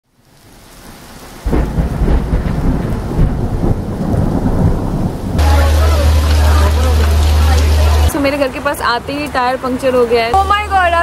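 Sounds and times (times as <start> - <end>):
rain: 0.0 - 11.0
thunder rumbling: 1.4 - 8.8.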